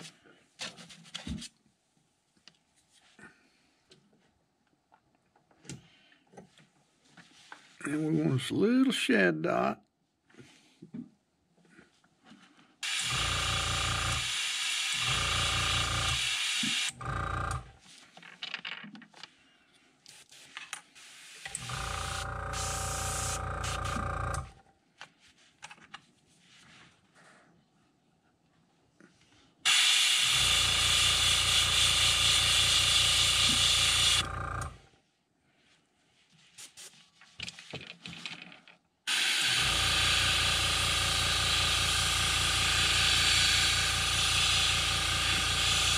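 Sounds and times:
compressor motor hum: 12.8 - 17.8, 21.5 - 24.6, 29.7 - 34.9, 39.1 - 45.9
airbrush spraying hiss: 20.1 - 21.6, 22.6 - 24.0.

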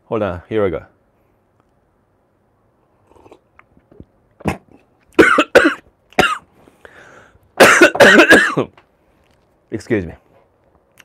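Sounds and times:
man coughing: 4.4 - 6.5, 7.6 - 8.7.

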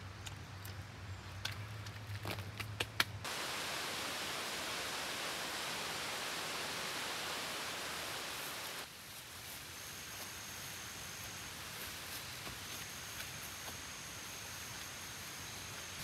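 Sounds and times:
steady hiss: 3.2 - 16.0.

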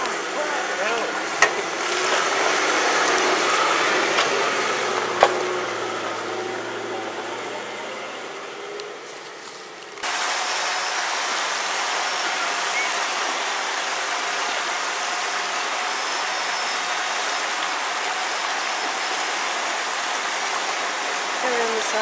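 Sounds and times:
creek water rushing over rapids: 0.0 - 8.0, 9.3 - 22.0
faint engine hum: 0.0 - 22.0.

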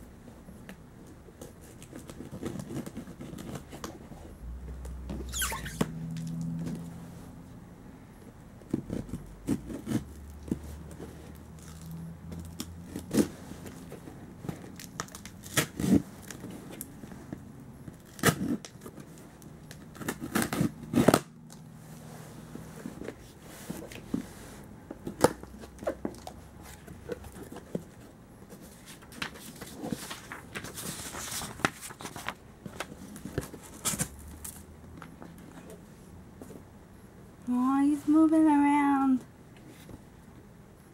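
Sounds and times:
packing tape tearing: 14.5 - 16.9, 17.9 - 21.6, 33.0 - 34.6.

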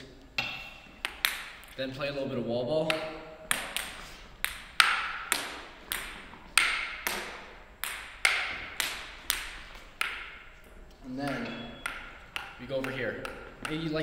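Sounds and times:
ping-pong ball clicks: 0.4 - 1.7, 2.8 - 14.0.

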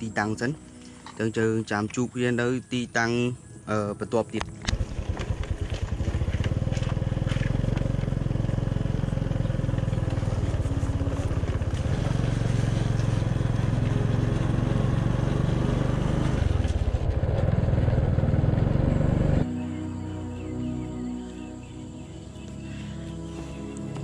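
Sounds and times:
scooter engine running: 4.6 - 19.5.

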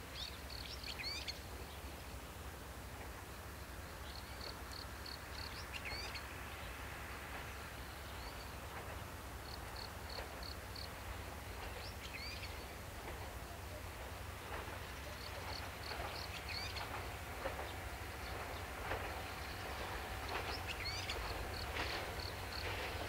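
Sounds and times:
low outdoor background: 0.0 - 23.0
birds chirping: 9.4 - 23.0
downward-sweeping bird calls: 13.4 - 23.0.

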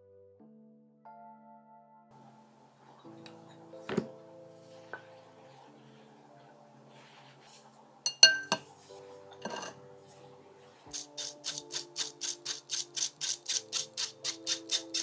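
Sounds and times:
metal sieve tapping: 8.1 - 8.7, 9.4 - 9.8.

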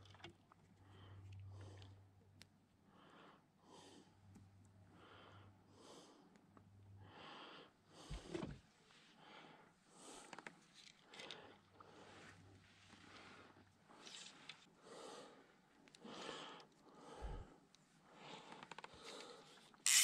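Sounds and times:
faint breathing: 4.9 - 6.3, 7.0 - 8.4, 14.8 - 19.7.

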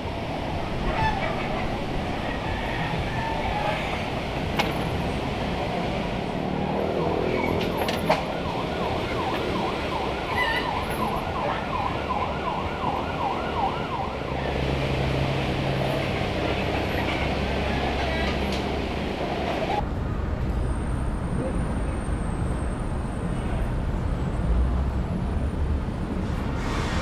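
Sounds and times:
traffic noise: 0.0 - 27.0
warbling siren tone: 6.6 - 14.6.

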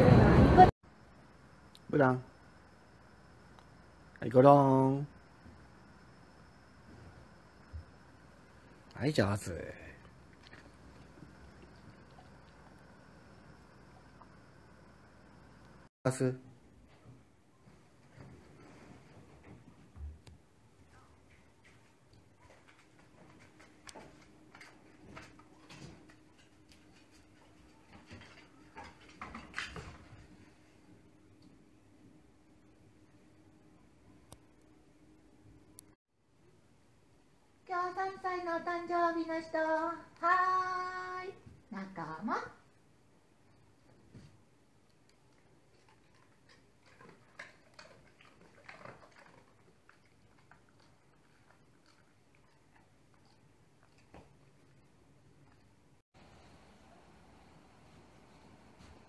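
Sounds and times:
dog licking the floor: 45.3 - 54.8.

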